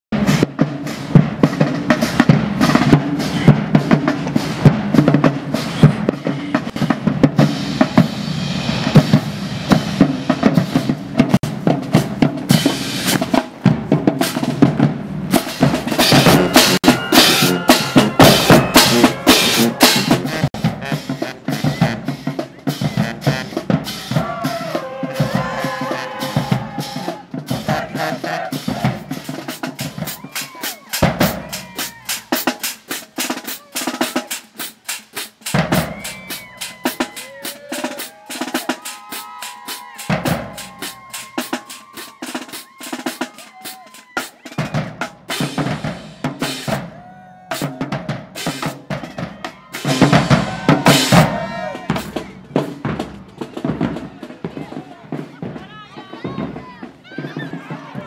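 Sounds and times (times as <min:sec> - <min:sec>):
marching band playing: 0:00.1 - 0:58.0
snare and bass drums: 0:00.1 - 0:58.0
brass horns holding notes: 0:15.8 - 0:30.1.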